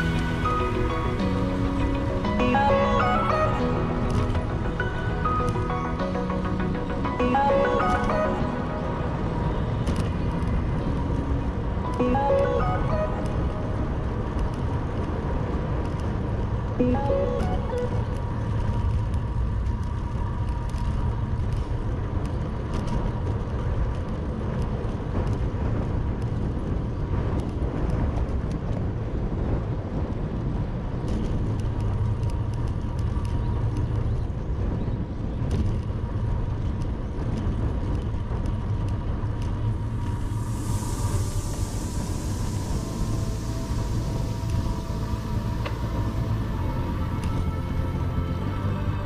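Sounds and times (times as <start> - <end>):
bicycle road rumble: 0.0 - 49.0
steady wind: 0.0 - 49.0
hiss: 39.9 - 46.0.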